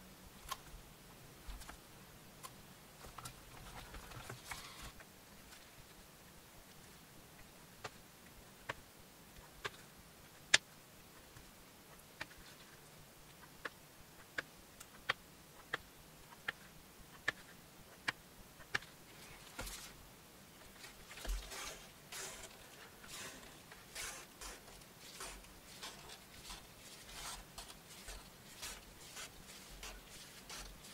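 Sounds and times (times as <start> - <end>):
soft rustling: 18.8 - 30.9.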